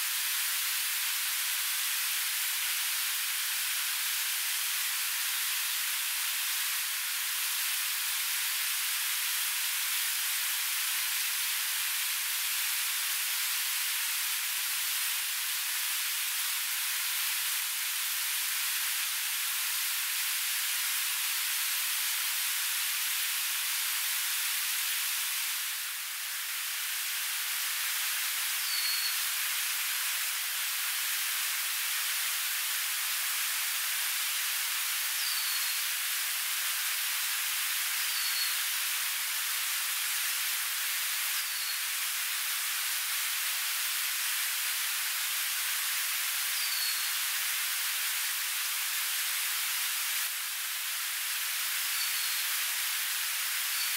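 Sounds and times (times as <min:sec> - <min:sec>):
food sizzling in hot oil: 0:00.0 - 0:53.9.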